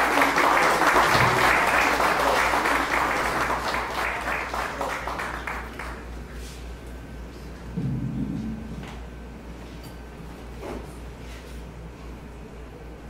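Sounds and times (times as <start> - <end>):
audience applause: 0.0 - 6.1.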